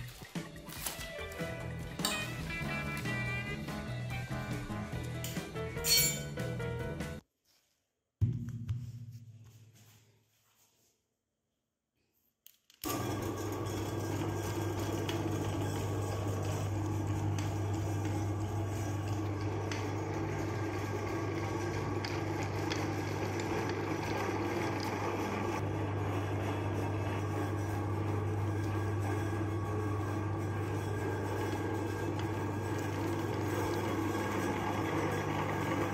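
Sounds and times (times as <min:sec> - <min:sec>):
meat grinder motor humming: 0:12.8 - 0:35.9.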